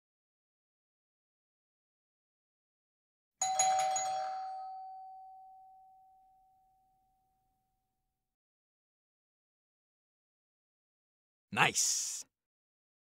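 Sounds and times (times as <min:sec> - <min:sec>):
bell-like chime: 0:03.4 - 0:07.4.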